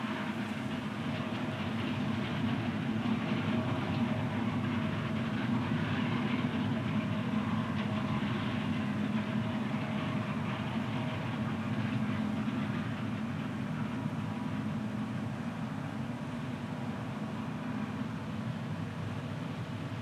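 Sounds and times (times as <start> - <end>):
combine harvester engine drone: 0.0 - 20.0.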